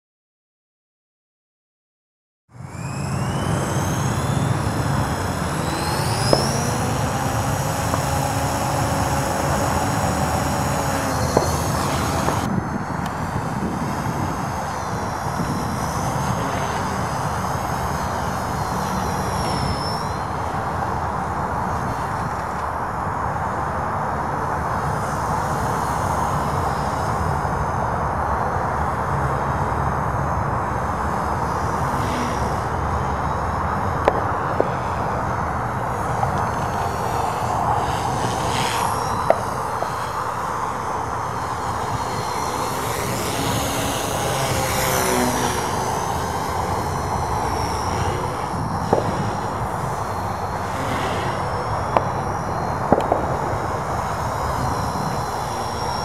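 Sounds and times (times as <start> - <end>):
model helicopter rotor and motor: 2.5 - 56.0
sharp clicks: 3.7 - 13.2.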